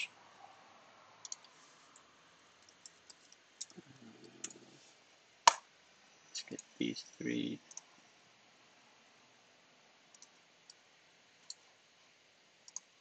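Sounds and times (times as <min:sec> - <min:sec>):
mouse click: 0:01.2 - 0:01.5, 0:10.1 - 0:10.8, 0:12.7 - 0:12.9.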